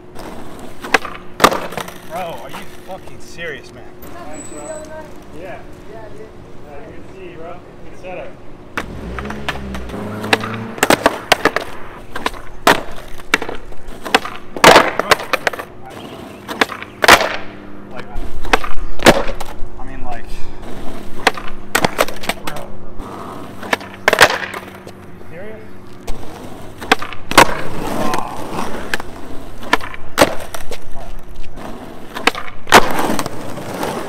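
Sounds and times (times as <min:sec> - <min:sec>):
skateboard rolling on asphalt: 0:00.0 - 0:06.2, 0:08.7 - 0:34.0
skateboard clacks: 0:00.1 - 0:02.9, 0:08.8 - 0:17.4, 0:18.4 - 0:19.6, 0:20.6 - 0:22.7, 0:23.5 - 0:25.0, 0:26.1 - 0:34.0.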